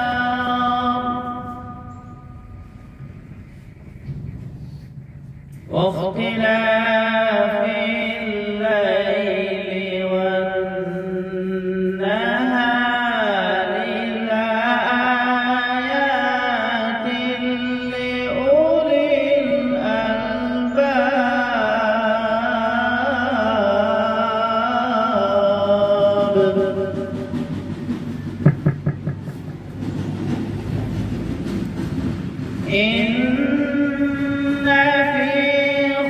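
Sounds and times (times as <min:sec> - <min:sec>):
man reciting melodically: 0:00.0 - 0:02.6, 0:05.4 - 0:27.6, 0:32.6 - 0:36.0.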